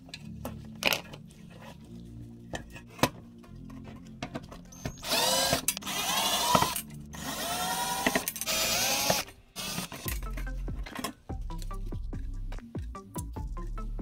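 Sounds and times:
cordless drill whining: 4.7s - 10.0s.

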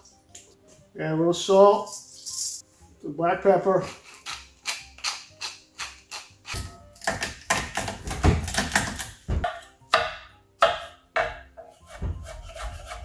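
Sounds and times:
knife chopping on wooden board: 4.0s - 13.0s.

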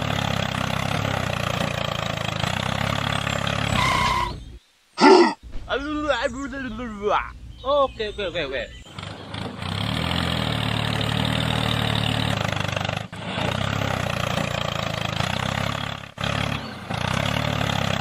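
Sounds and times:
mini tractor motor running: 0.0s - 3.8s, 8.8s - 18.0s.

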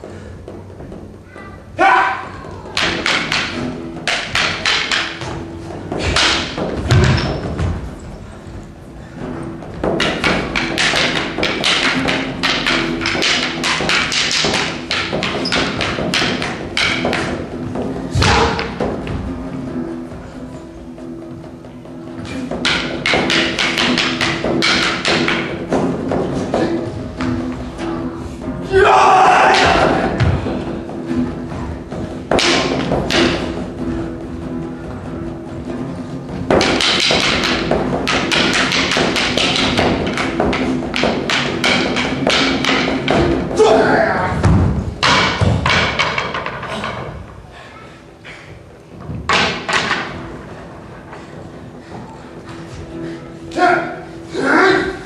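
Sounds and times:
background music: 0.0s - 55.0s
sticks clacking together: 2.7s - 7.4s, 9.8s - 17.5s, 22.2s - 27.3s, 32.3s - 33.6s, 36.5s - 43.6s.

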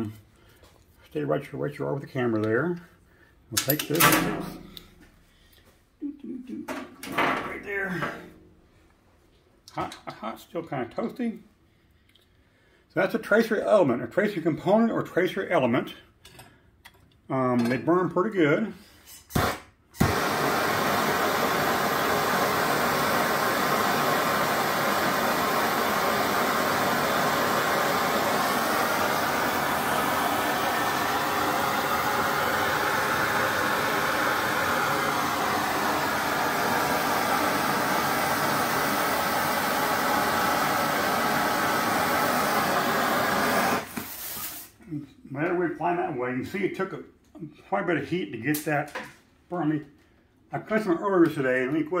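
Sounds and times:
gas torch flame hissing: 19.2s - 44.8s.

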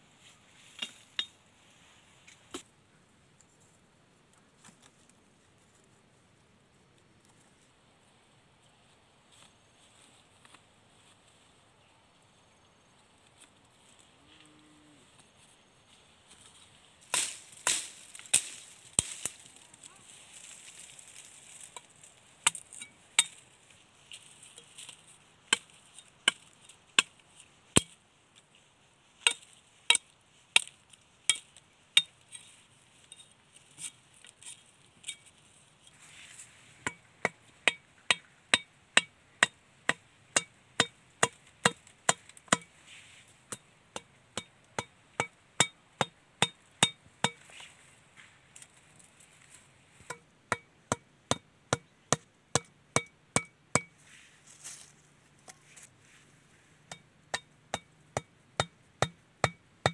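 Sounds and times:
machete striking bamboo stake: 17.1s - 19.5s, 27.8s - 28.0s, 29.2s - 32.1s, 36.8s - 42.7s.

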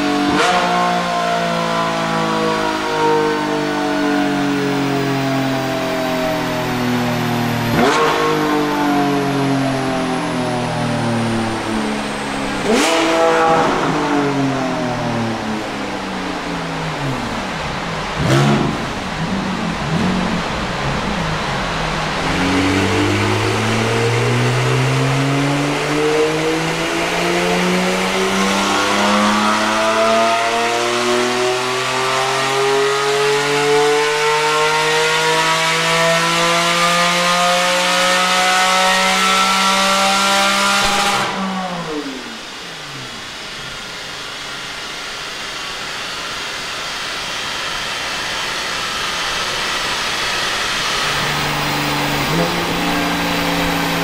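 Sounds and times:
car engine revving: 0.0s - 54.0s
steady rushing noise: 9.2s - 25.2s, 41.2s - 54.0s.

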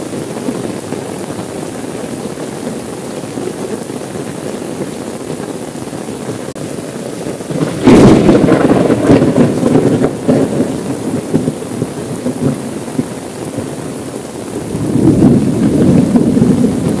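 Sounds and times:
rain on car window: 0.0s - 17.0s
thunder clap and rumble: 7.4s - 17.0s.

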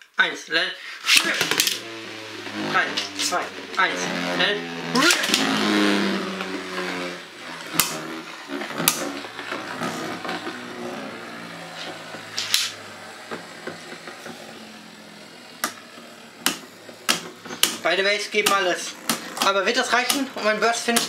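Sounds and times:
spinning tops whirring: 1.0s - 21.0s.

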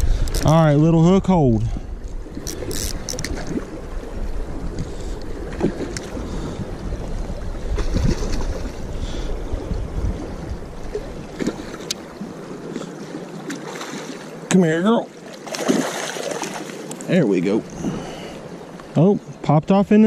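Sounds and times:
wind noise on microphone: 0.0s - 11.7s
creek water flowing: 0.0s - 20.0s
fish splashing at surface: 15.4s - 16.8s.

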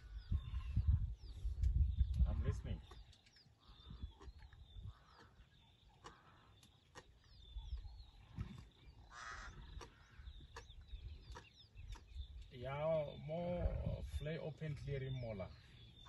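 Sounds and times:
small birds chirping: 0.0s - 16.0s
faint clicks: 5.1s - 7.1s
harsh caw-like bird call: 9.1s - 10.3s.

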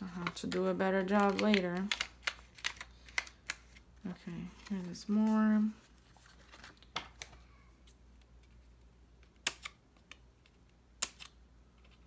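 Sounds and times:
paper handling: 4.4s - 7.4s.

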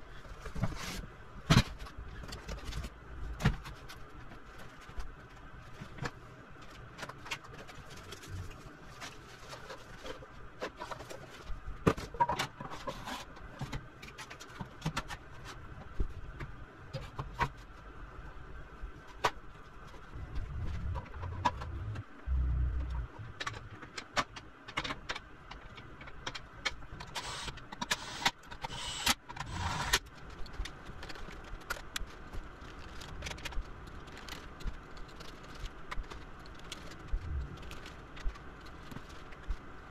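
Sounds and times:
faint steady hum: 0.0s - 39.9s
low rumble: 20.0s - 23.8s, 37.1s - 37.8s.

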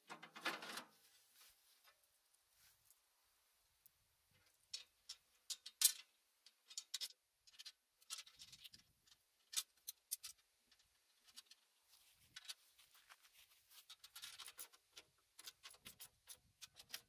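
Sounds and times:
light clicks and taps on metal: 3.8s - 11.7s.

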